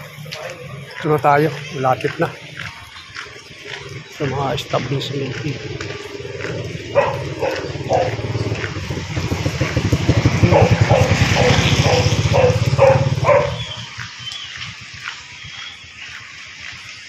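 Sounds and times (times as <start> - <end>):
motor scooter passing by: 0.0 - 17.0
dog barking: 0.2 - 0.9, 6.8 - 8.8, 10.4 - 14.0.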